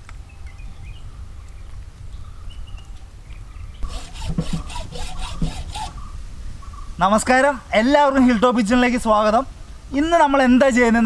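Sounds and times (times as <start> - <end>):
hacksaw cutting through bone: 3.8 - 6.0.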